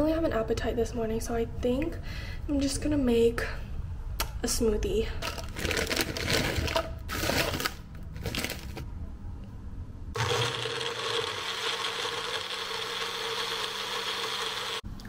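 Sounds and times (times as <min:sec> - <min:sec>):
frozen berries clattering into plastic: 0:05.2 - 0:08.8
blender whining: 0:10.2 - 0:14.8.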